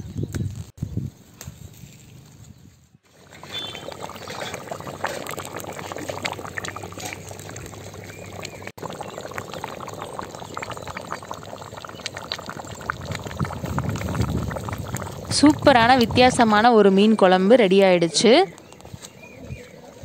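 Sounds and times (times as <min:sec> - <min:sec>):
curry bubbling in a pot: 0:03.1 - 0:16.7.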